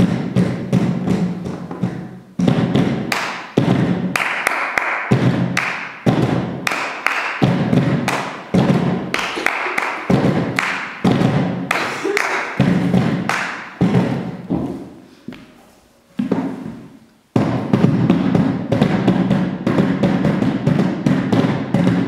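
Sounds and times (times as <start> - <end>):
palms thumping on plastic tubs: 0.0 - 15.5, 16.2 - 22.0
hand claps: 3.1 - 14.1.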